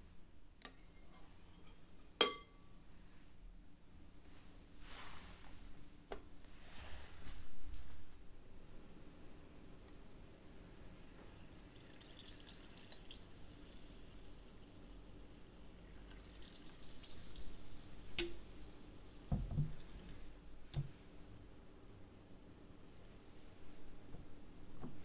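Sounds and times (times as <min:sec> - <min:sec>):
glass clink: 0:00.7 - 0:02.6
sparkling water pouring and fizzing: 0:11.1 - 0:20.8.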